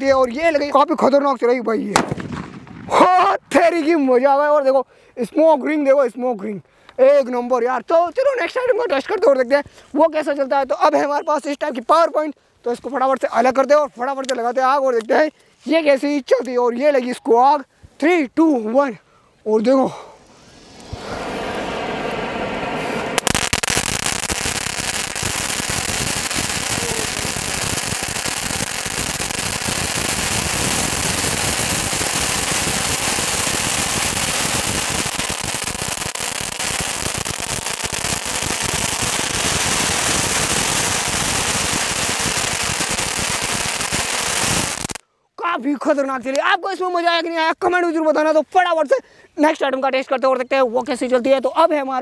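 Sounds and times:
firework hissing and crackling: 0:19.9 - 0:45.0.

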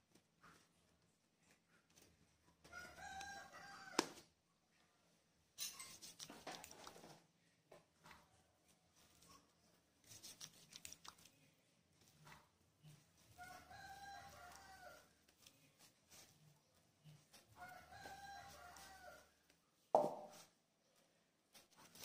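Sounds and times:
rooster crowing: 0:02.7 - 0:04.2, 0:13.4 - 0:15.1, 0:17.6 - 0:19.3
hands kneading dough: 0:05.8 - 0:22.0.

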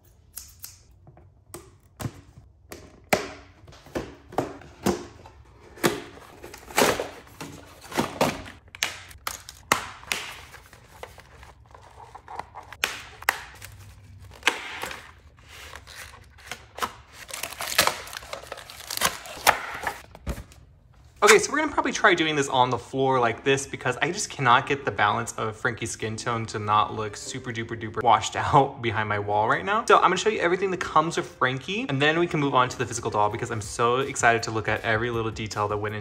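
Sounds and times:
cardboard tearing: 0:09.1 - 0:20.0.

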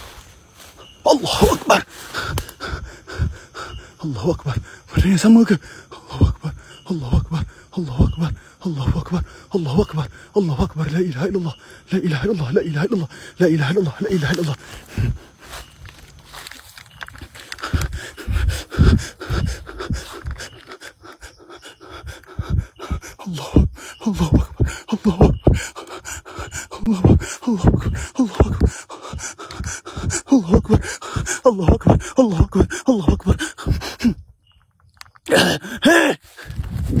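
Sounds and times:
person panting with grunts: 0:01.1 - 0:15.8, 0:17.2 - 0:34.2, 0:35.3 - 0:37.0
rustling: 0:15.3 - 0:18.8.

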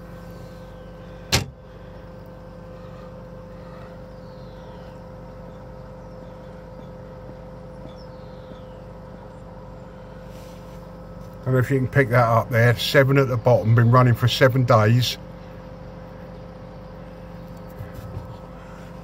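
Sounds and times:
pond equipment humming: 0:00.0 - 0:19.0.

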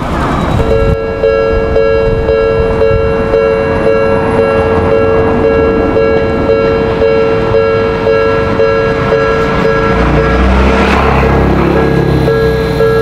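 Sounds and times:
level-crossing warning bell ringing: 0:00.0 - 0:13.0
train running past: 0:00.0 - 0:13.0.

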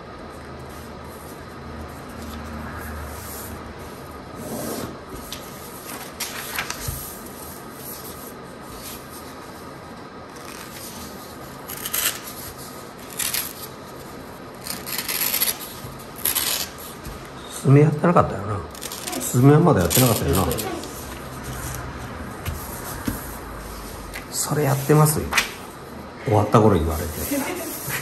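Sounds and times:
paper folding and rustling: 0:05.2 - 0:17.4, 0:18.7 - 0:25.7.

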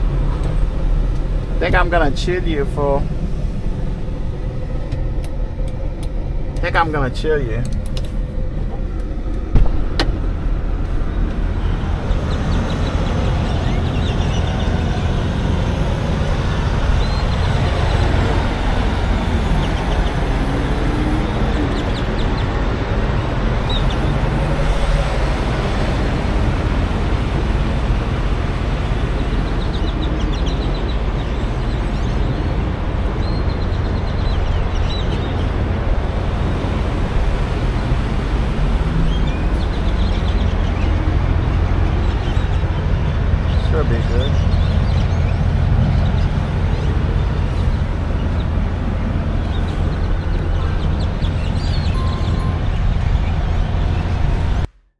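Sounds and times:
diesel trucks idling: 0:00.0 - 0:54.7
thump: 0:09.5 - 0:10.1.

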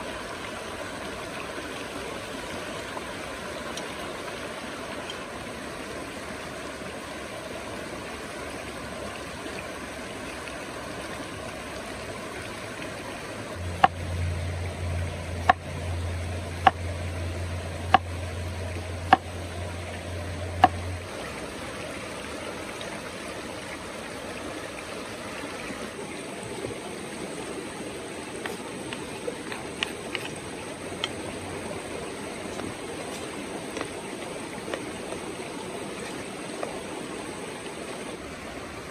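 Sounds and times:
stream rushing over rocks: 0:00.0 - 0:38.9
low hum: 0:13.4 - 0:22.9.

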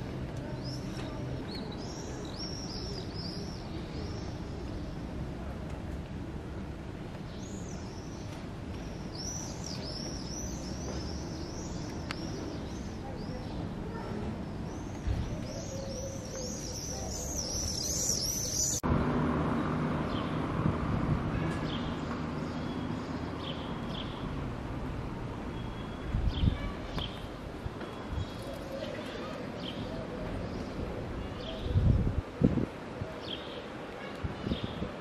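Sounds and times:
outdoor background noise: 0:00.0 - 0:35.0
small birds chirping: 0:07.2 - 0:18.8.

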